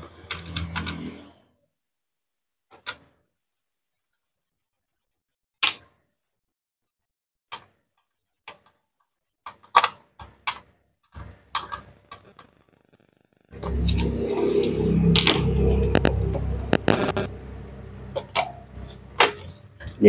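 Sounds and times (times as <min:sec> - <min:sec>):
background music: 0:13.6 - 0:19.5.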